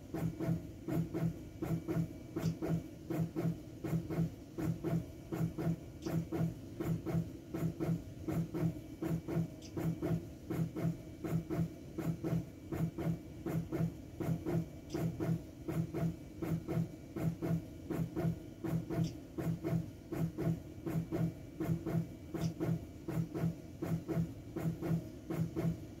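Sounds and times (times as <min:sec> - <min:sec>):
balloon pump pulsing and clicking: 0:00.0 - 0:26.0.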